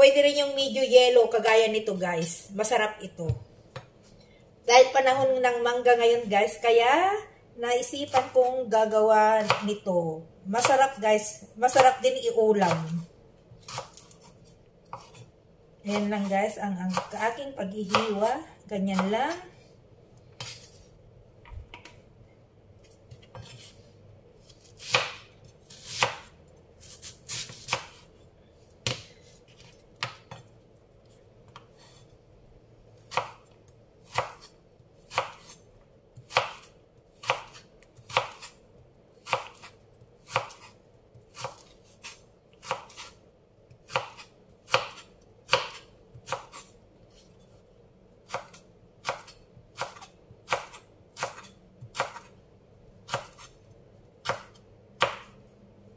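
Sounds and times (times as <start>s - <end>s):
knife chopping on cutting board: 13.6s - 15.3s, 20.4s - 20.8s, 22.8s - 23.8s, 24.5s - 28.1s, 28.8s - 30.5s, 33.1s - 33.4s, 34.0s - 34.5s, 35.1s - 35.6s, 36.2s - 38.6s, 39.2s - 43.2s, 43.8s - 47.4s, 48.3s - 52.3s, 53.0s - 53.6s, 54.2s - 55.4s.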